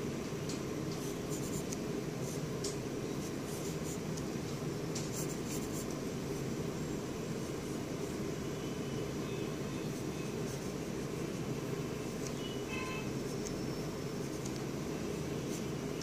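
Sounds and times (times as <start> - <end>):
low background hum: 0.0 - 16.0
pencil scratching on paper: 5.1 - 5.9.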